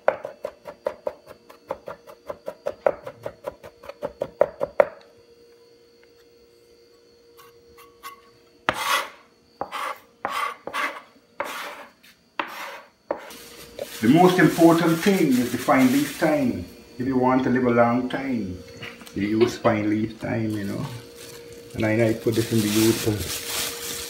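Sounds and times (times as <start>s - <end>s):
blade scraping across board: 7.4s - 12.9s.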